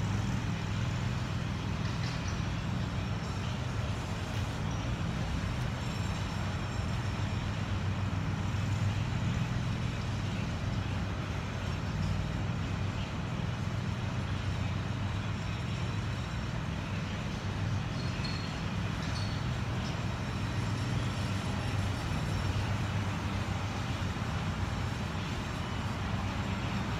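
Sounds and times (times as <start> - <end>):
distant traffic rumble: 0.0 - 26.9.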